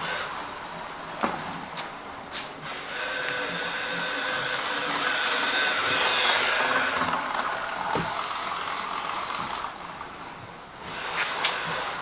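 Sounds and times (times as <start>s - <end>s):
model train motor whirring: 2.6s - 12.0s.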